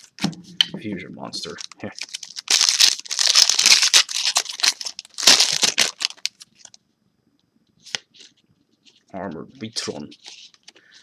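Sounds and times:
foil wrapper tearing and crinkling: 1.4s - 6.8s.

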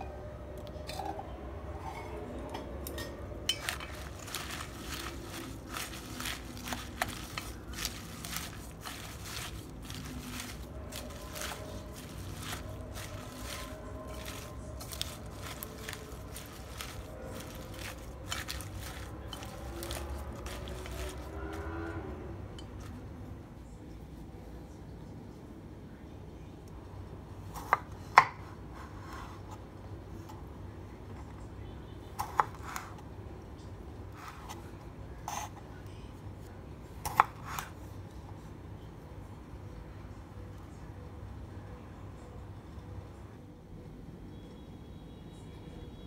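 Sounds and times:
chopsticks scraping metal bowl: 3.5s - 22.0s
wet lettuce rustling and squishing: 3.5s - 22.0s
knife slicing tomatoes: 3.6s - 21.7s.

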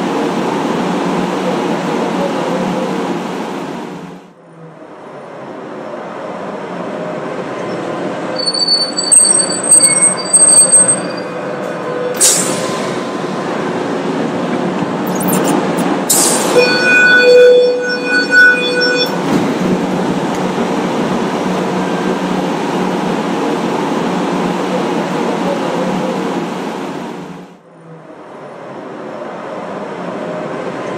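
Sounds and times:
tram wheels rumbling on rails: 0.0s - 30.9s
high-pitched wheel squeal: 7.6s - 12.9s, 15.1s - 20.0s.

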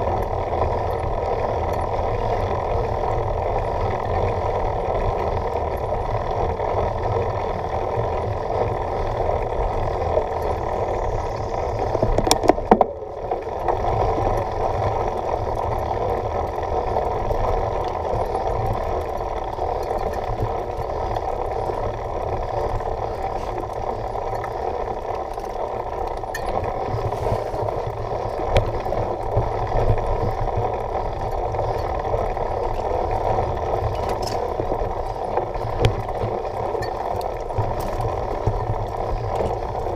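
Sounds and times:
bike rattling over bumps: 0.0s - 39.9s
bike tyres rumbling on dirt: 0.0s - 39.9s
wind noise: 0.0s - 39.9s.

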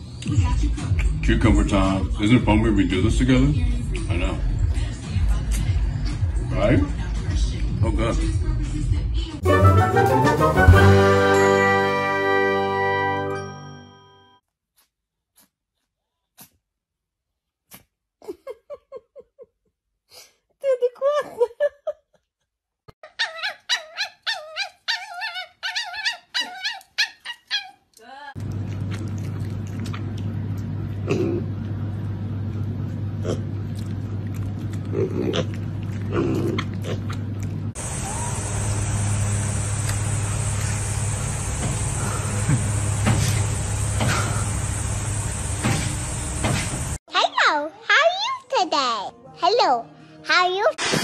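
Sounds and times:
bell-like chime: 13.2s - 14.4s
steady low hum: 28.4s - 47.0s
pigs grunting: 30.9s - 31.9s, 33.1s - 37.4s.

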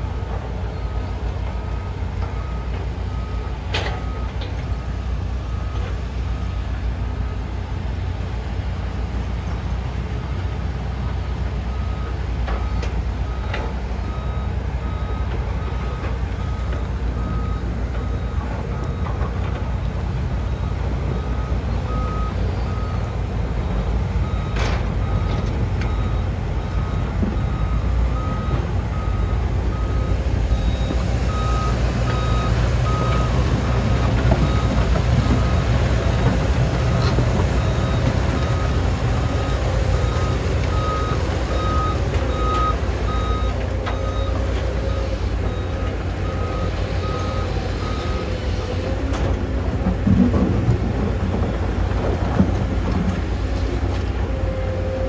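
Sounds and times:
heavy diesel machinery running: 0.0s - 55.0s
backup alarm beeping: 11.8s - 49.0s.

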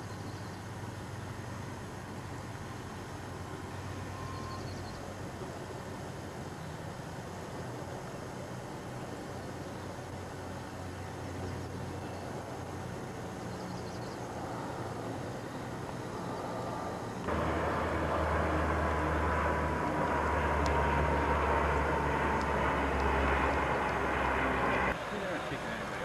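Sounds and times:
distant engine drone: 0.0s - 26.0s
outdoor rushing noise: 14.2s - 26.0s.

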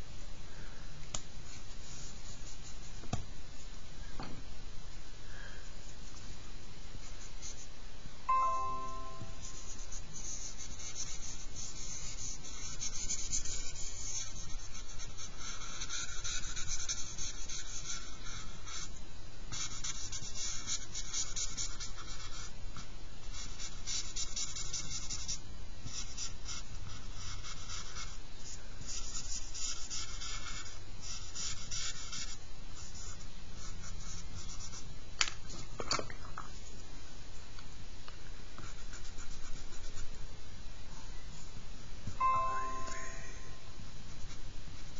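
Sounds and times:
fingers rubbing charcoal on paper: 9.5s - 34.9s, 38.6s - 40.2s.

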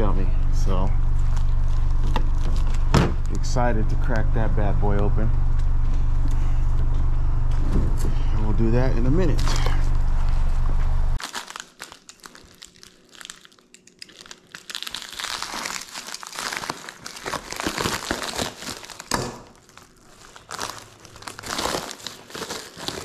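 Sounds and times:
loud low hum: 0.0s - 11.2s
plastic crinkling and crackling: 1.2s - 3.4s, 11.2s - 23.0s.

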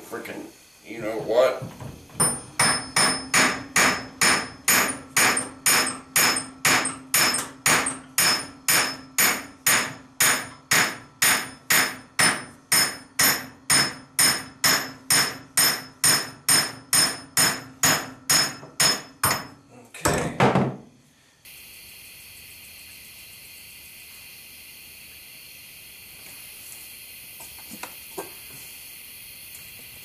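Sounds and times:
hammer striking metal with ring: 2.2s - 19.6s.

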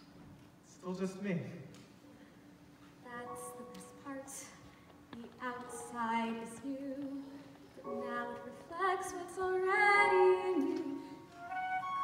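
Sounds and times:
woman singing show tune: 3.0s - 4.6s.

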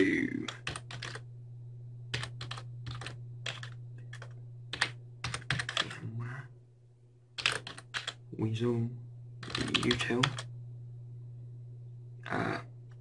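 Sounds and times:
steady low hum: 0.0s - 13.0s
computer keyboard typing: 0.4s - 1.2s, 2.1s - 6.0s, 7.4s - 8.2s, 9.4s - 10.5s.

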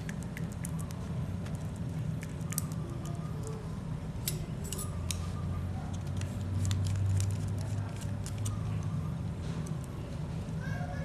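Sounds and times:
metal parts clicking and tapping: 4.2s - 5.2s.

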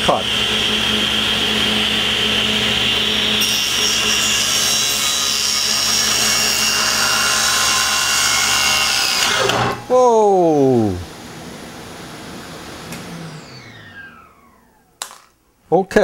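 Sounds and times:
table saw running: 0.0s - 10.0s, 12.8s - 15.2s.

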